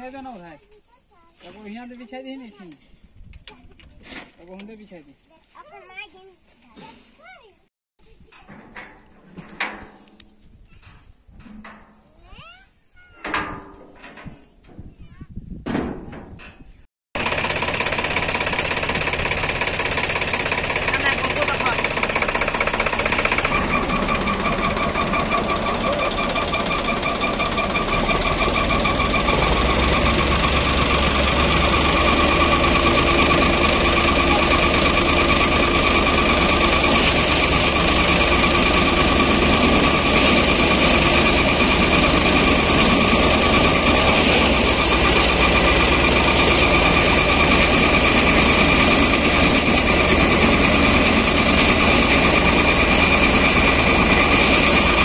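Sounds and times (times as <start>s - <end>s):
high mechanical whine: 17.2s - 55.0s
thresher machine din: 17.2s - 55.0s.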